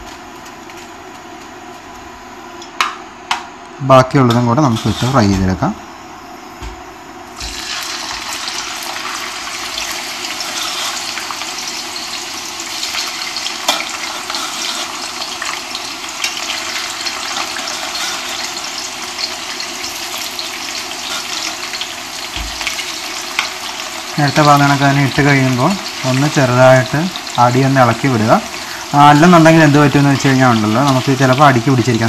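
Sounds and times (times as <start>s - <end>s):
potatoes sizzling in hot oil: 7.3s - 32.0s.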